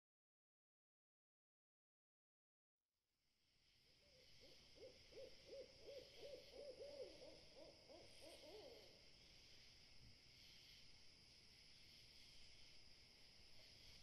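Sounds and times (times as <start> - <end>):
owl hooting: 4.1 - 9.0.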